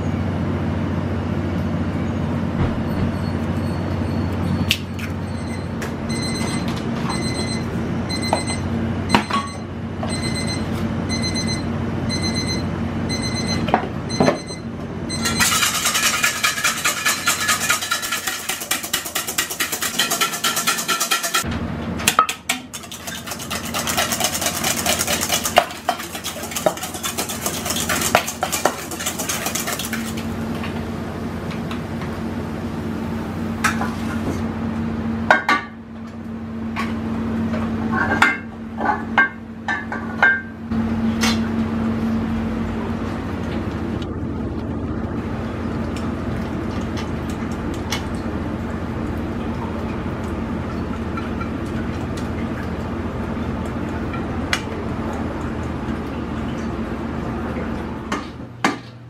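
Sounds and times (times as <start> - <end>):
kitchen hum: 0.9 - 59.0
pans and utensils clinking: 15.2 - 21.4
wire whisk beating in metal bowl: 15.2 - 21.5, 22.3 - 30.2.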